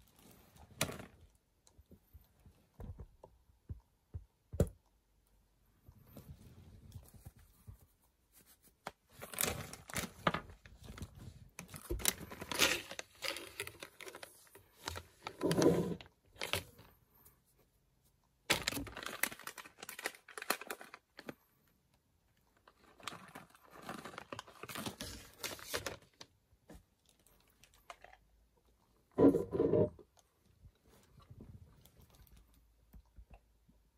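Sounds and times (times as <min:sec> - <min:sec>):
plastic bag crinkling and tearing: 0:09.1 - 0:16.8, 0:18.5 - 0:21.4, 0:22.6 - 0:26.3.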